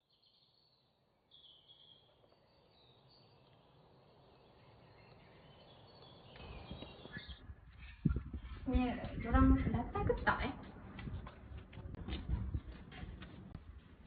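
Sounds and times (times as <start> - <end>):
faint bird chirps: 0.0 - 8.6
outdoor background noise: 0.0 - 14.0.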